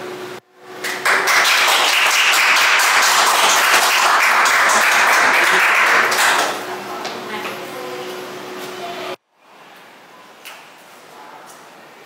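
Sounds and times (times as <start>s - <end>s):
students applauding: 0.8s - 6.7s.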